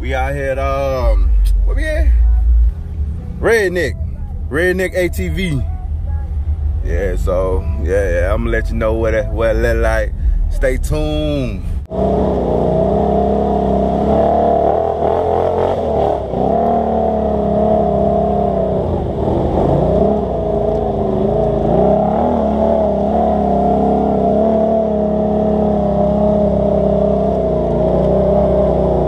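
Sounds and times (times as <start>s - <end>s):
atv engine revving: 11.9s - 29.0s.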